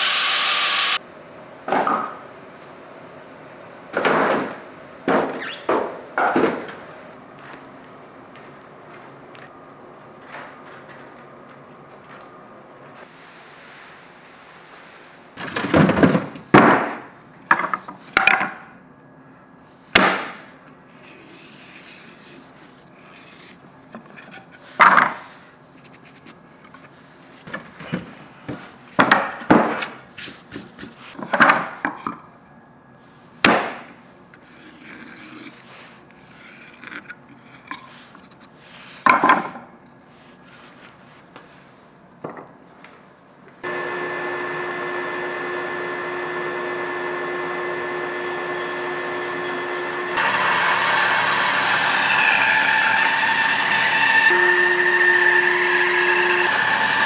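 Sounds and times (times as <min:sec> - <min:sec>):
wood scraping: 0:20.7 - 0:29.3, 0:34.4 - 0:41.4.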